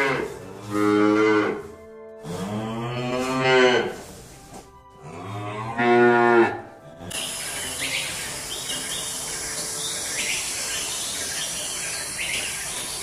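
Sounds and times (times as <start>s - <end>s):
cow mooing: 0.0s - 4.0s, 5.0s - 6.7s
outdoor ambience hiss: 6.8s - 13.0s
high bird chirps: 7.1s - 13.0s.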